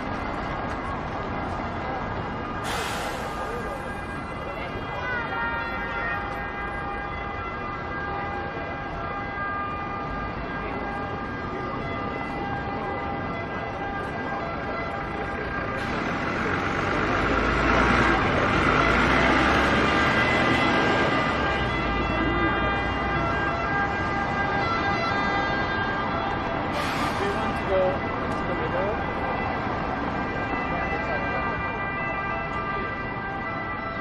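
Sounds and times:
city traffic hum: 0.0 - 34.0
vehicle passing: 15.6 - 24.2.

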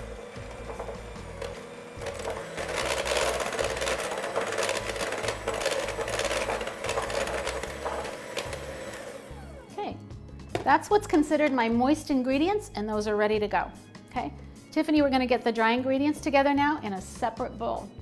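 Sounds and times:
electric hand mixer running: 0.0 - 9.7.

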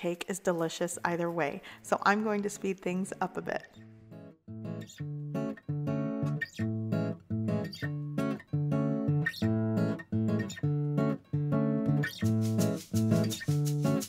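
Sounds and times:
guitar strumming chords: 3.8 - 14.0.

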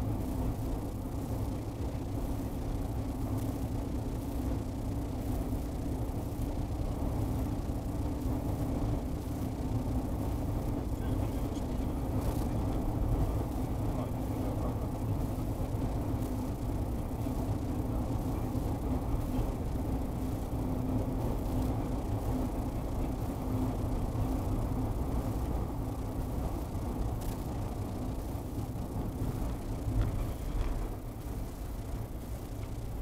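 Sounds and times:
car road and engine rumble: 0.0 - 33.0
faint crackles: 26.4 - 33.0.

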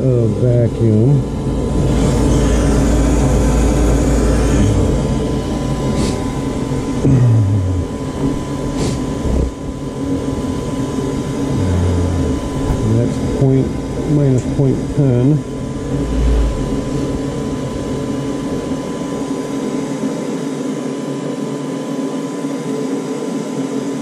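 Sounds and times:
furnace fan motor humming: 0.0 - 24.0.

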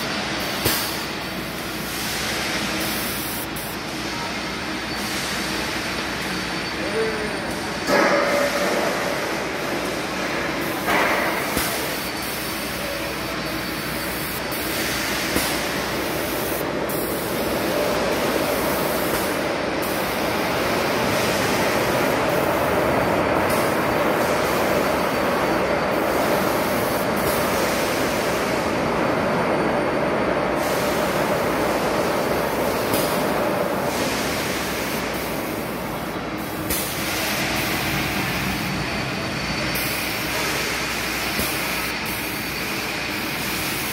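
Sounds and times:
steady hum: 0.0 - 43.9
paint spray gun hissing: 10.7 - 20.4, 26.0 - 28.3.

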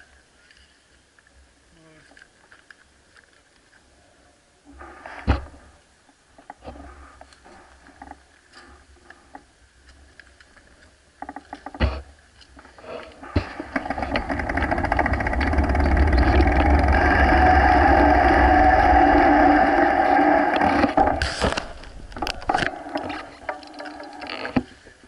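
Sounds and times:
bike tyres humming on tarmac: 12.8 - 25.0
wind on camera: 13.2 - 24.9
bicycle freewheel ticking: 13.8 - 20.7.

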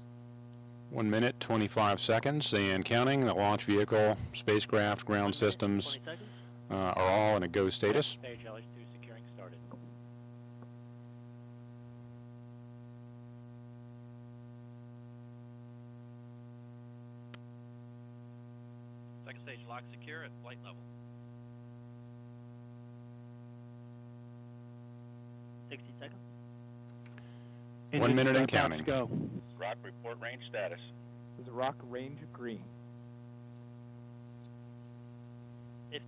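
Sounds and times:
electrical mains hum: 0.0 - 36.0
muffled radio voice: 19.3 - 20.8, 28.0 - 30.9.

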